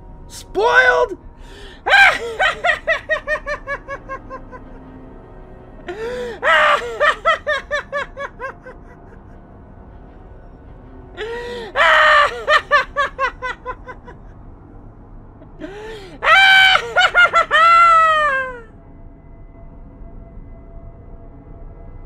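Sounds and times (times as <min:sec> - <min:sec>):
high-pitched cackling laughter: 0:01.9 - 0:04.6, 0:06.4 - 0:08.9, 0:11.8 - 0:14.2, 0:16.1 - 0:18.6.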